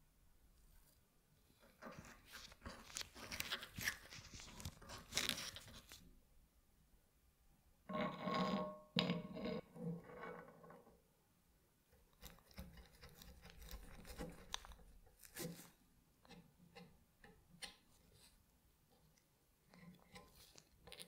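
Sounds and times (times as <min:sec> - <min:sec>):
light clicks and scrapes: 0:00.6 - 0:06.0, 0:12.1 - 0:21.0.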